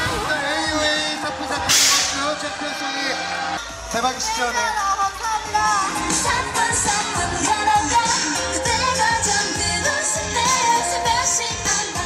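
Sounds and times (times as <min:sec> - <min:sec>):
women singing pop song: 0:04.7 - 0:12.0.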